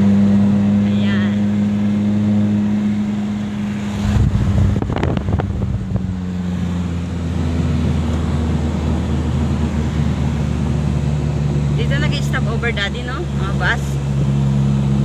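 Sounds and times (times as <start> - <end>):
car engine and road hum: 0.0 - 15.0.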